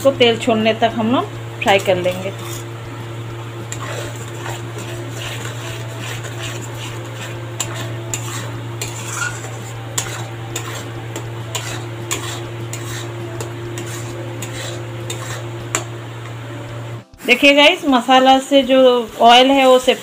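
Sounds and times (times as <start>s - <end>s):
light sizzle: 0.0s - 20.0s
metal spatula scraping a pan: 1.6s - 2.8s, 3.6s - 16.0s, 19.1s - 20.0s.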